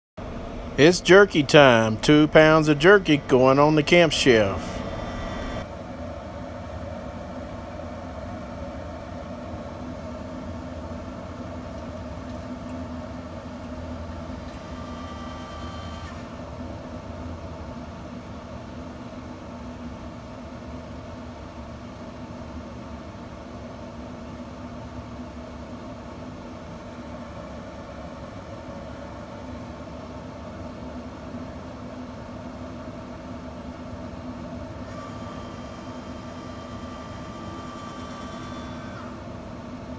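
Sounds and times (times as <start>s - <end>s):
smoker fan humming: 0.2s - 21.5s.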